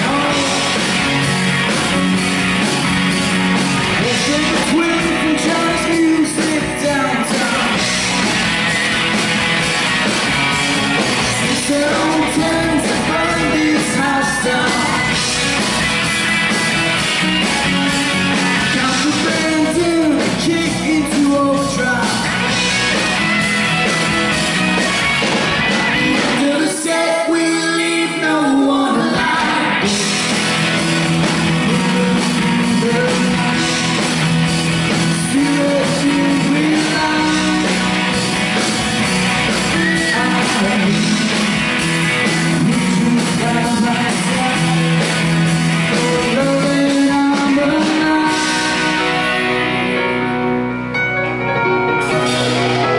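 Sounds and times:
person singing: 0.0 - 1.1, 4.0 - 7.9, 11.4 - 15.3, 18.6 - 22.5, 25.9 - 30.4, 31.6 - 34.2, 34.9 - 38.2, 39.7 - 45.2, 45.8 - 50.4
rock band playing live: 0.0 - 52.9.

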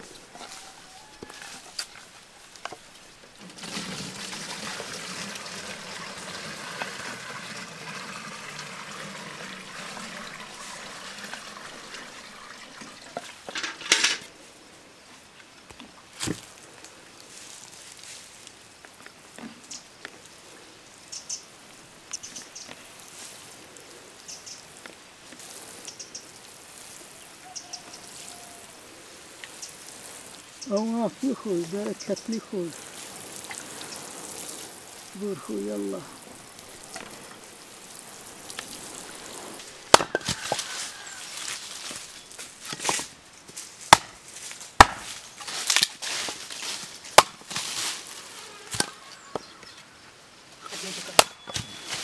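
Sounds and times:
water pouring: 0.0 - 14.3, 24.7 - 43.1
watering can sprinkling soil: 0.0 - 52.0.

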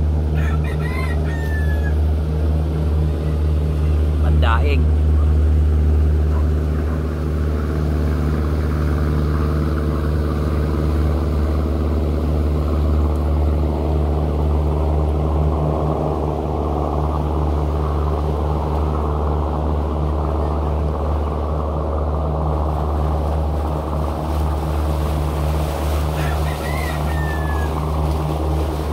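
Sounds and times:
steady low engine drone: 0.0 - 28.9.

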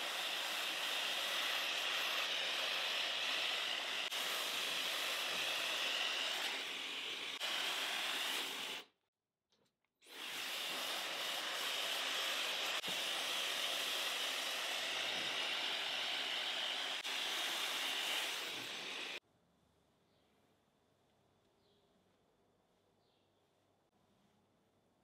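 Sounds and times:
hair dryer blowing: 0.0 - 9.0, 10.0 - 19.2.

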